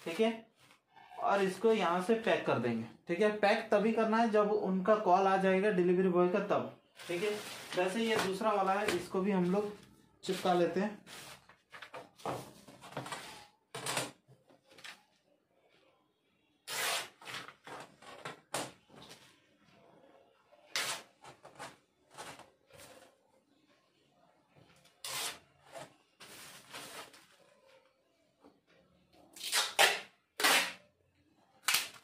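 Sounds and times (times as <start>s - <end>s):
plastic mailer and paper rustling: 7.0s - 14.0s, 25.1s - 27.6s.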